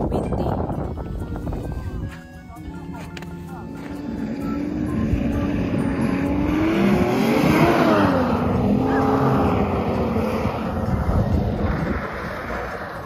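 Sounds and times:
vehicle engine passing by: 3.8s - 13.0s.

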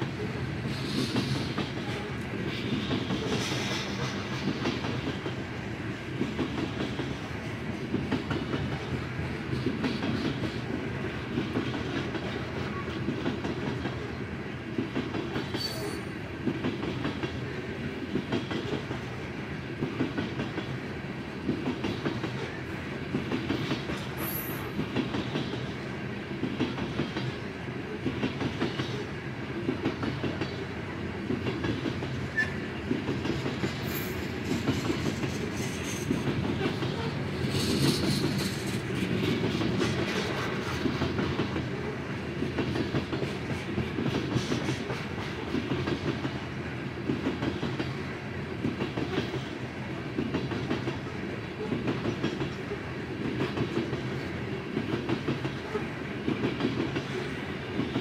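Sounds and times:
train cars rumbling past: 0.0s - 58.0s
wheels clacking over rail joints: 29.6s - 48.0s.

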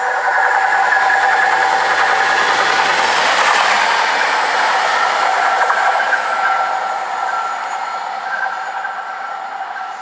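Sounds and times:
diesel locomotive engine with whine: 0.0s - 10.0s.

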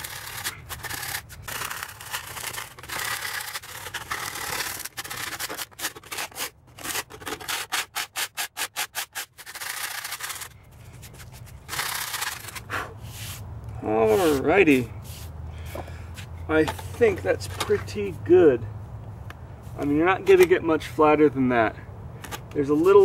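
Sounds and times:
scraper rasping on soft concrete: 0.0s - 13.4s, 14.0s - 15.4s.

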